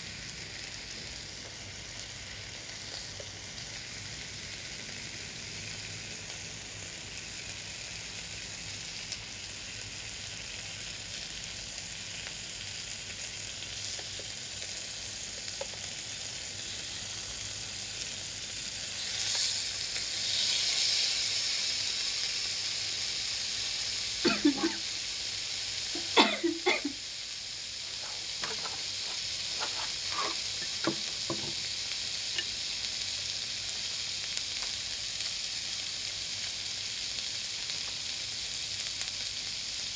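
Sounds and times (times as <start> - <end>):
meat sizzling on grill plate: 0.0 - 39.9
chopsticks tapping grill plate: 28.4 - 31.6.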